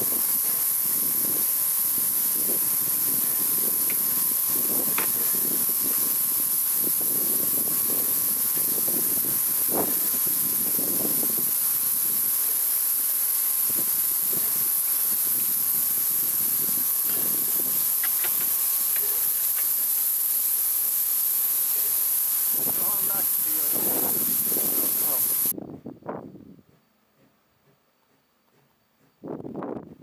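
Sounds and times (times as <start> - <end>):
wind rumble on microphone: 0.0 - 12.4, 13.6 - 18.4, 22.5 - 26.8, 29.2 - 30.0
steam hissing: 0.0 - 25.6.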